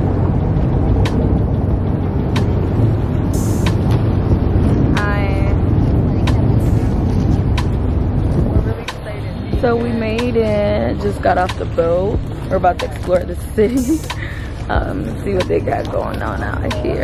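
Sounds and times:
boat engine rumbling: 0.0s - 17.0s
person speaking: 8.7s - 17.0s.

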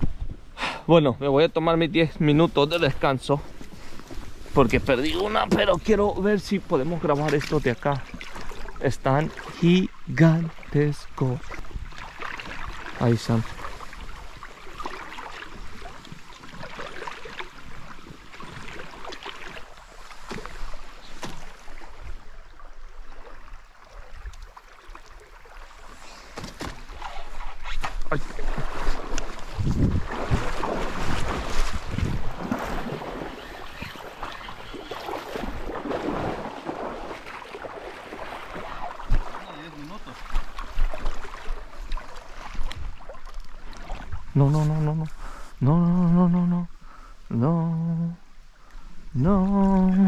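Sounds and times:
wind on microphone: 0.0s - 0.6s, 27.1s - 37.1s
river water rushing: 7.9s - 27.0s, 28.2s - 44.1s.

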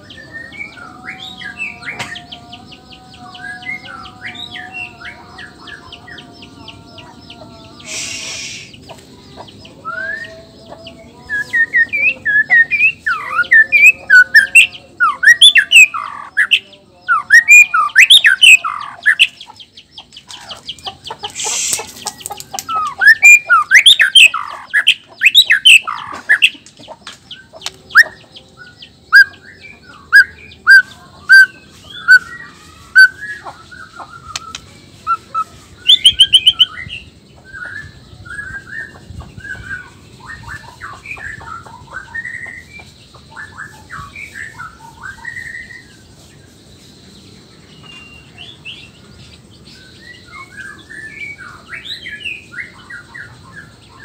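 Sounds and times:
harsh bird hissing notes: 7.7s - 9.2s, 21.2s - 23.7s, 31.7s - 36.7s
bird whistling song: 7.8s - 9.0s, 9.7s - 10.4s, 11.2s - 19.5s, 21.3s - 26.6s, 27.3s - 46.1s, 47.6s - 54.0s.

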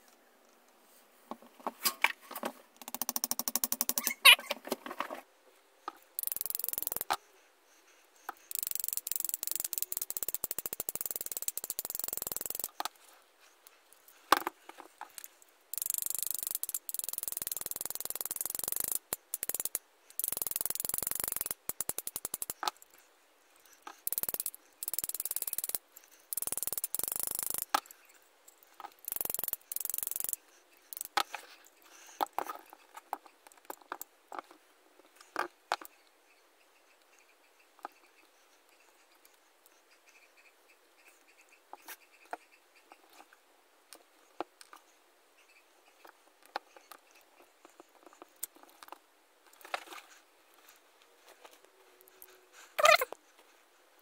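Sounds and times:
metal gears clicking: 6.2s - 7.1s, 8.5s - 12.7s, 15.7s - 22.6s, 24.0s - 27.7s, 29.0s - 31.2s
dry high rattling: 8.3s - 12.8s, 15.0s - 22.9s, 23.8s - 27.9s.

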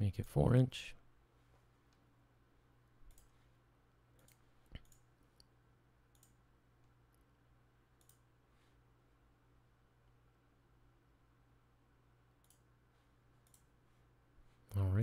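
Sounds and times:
faint low hum: 0.0s - 15.0s
computer mouse clicks: 3.1s - 3.4s, 4.2s - 5.5s, 6.1s - 7.2s, 8.0s - 8.3s, 12.4s - 12.7s, 13.4s - 13.7s.

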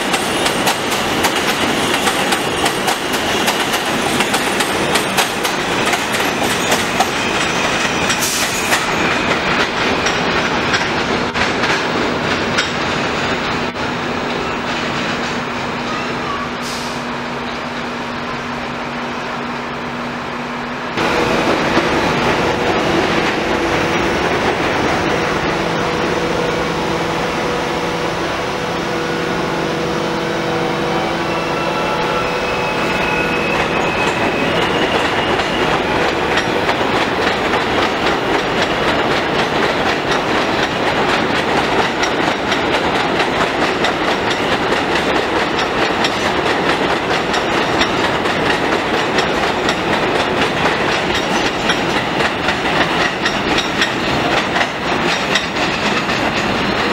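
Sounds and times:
wheels clacking over rail joints: 0.0s - 16.4s, 33.4s - 56.9s
electric train whine: 12.1s - 56.9s.

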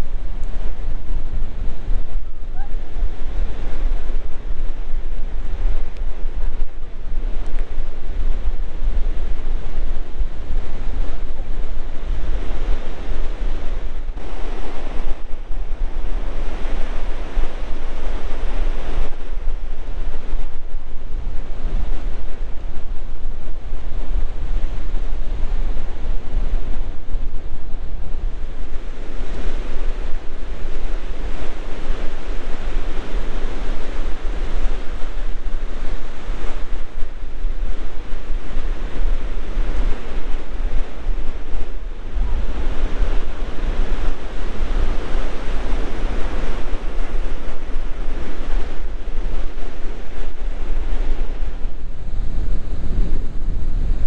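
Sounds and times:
wind buffeting microphone: 0.0s - 54.0s
waves breaking on shore: 12.1s - 20.4s, 27.8s - 54.0s.

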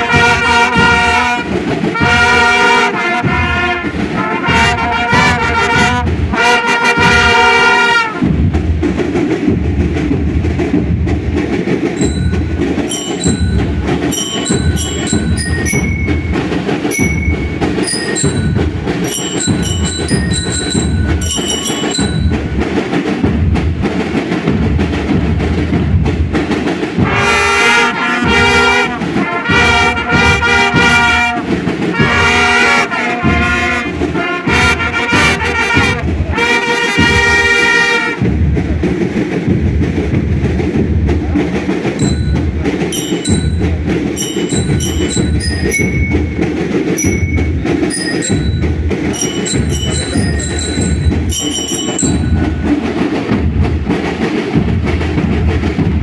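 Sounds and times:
brass horns playing tune: 0.0s - 8.3s, 12.0s - 22.5s, 27.0s - 38.2s, 44.2s - 48.5s
marching drums: 0.0s - 56.0s
short high notes: 12.0s - 22.6s, 42.0s - 52.8s.

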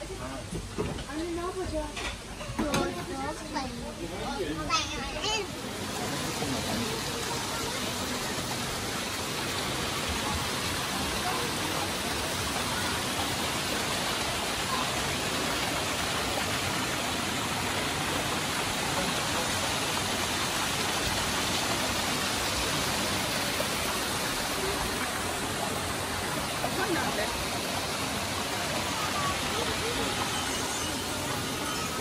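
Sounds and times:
running water rushing: 0.0s - 32.0s.

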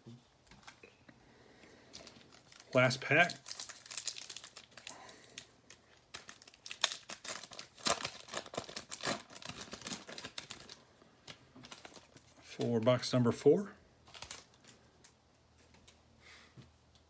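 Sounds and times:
foil wrapper tearing and crinkling: 2.0s - 12.4s, 14.0s - 14.8s.

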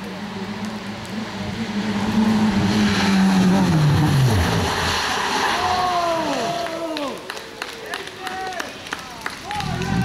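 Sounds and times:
rally car engine revving: 0.0s - 6.5s
tyre and road noise hiss: 0.0s - 7.3s.

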